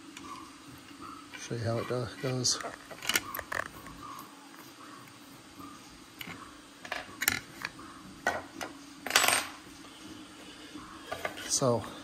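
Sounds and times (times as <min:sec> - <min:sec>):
hard parts clicking and knocking: 0:02.2 - 0:03.7.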